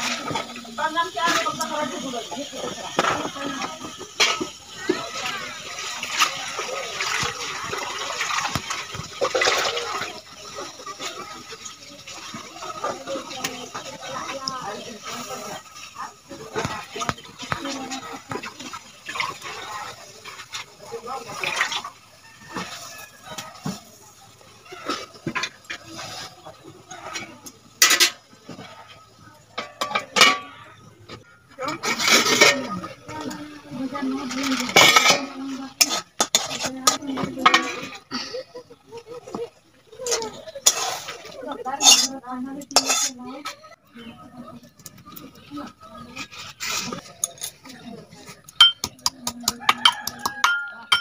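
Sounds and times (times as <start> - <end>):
water sloshing in metal bucket: 0.0 - 30.6, 31.6 - 38.4, 39.0 - 43.7
steel plate clanking on pan: 3.0 - 5.0, 27.8 - 28.2, 29.6 - 30.6, 34.4 - 38.0, 41.8 - 43.2, 48.6 - 51.0.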